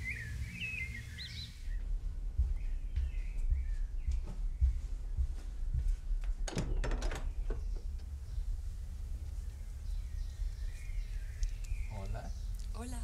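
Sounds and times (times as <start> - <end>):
steady low rumble: 0.0 - 6.5, 7.2 - 13.0
short door rattle: 6.4 - 7.7.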